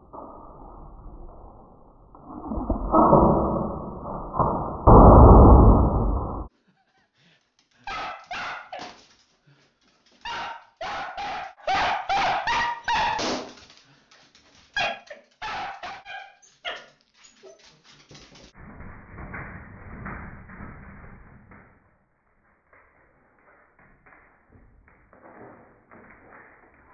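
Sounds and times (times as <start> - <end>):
dog barking: 7.9 - 8.9, 10.2 - 13.3, 14.8 - 16.9.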